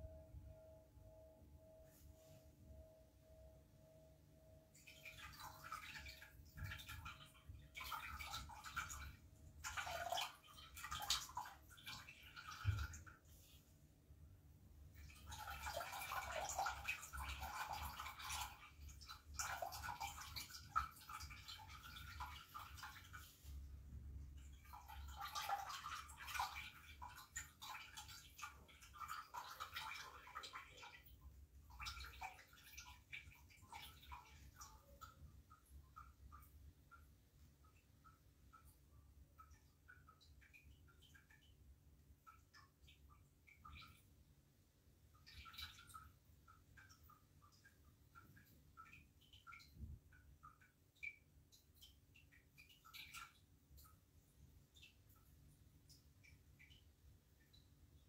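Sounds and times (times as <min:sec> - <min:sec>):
singing bowl ringing: 0:00.0 - 0:05.0.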